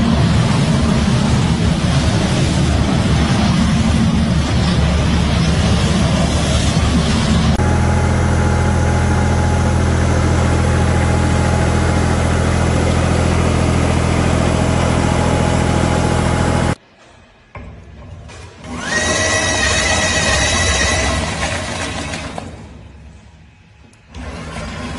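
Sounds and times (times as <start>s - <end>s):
mist sprayer engine running: 0.0s - 16.8s
leaf vacuum engine and fan: 0.0s - 24.9s.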